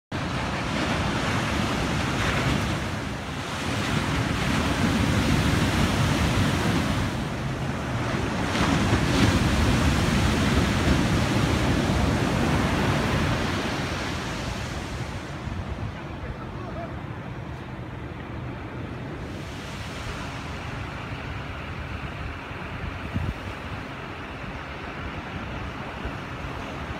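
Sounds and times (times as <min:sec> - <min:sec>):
waves breaking on sand: 0:00.1 - 0:26.9.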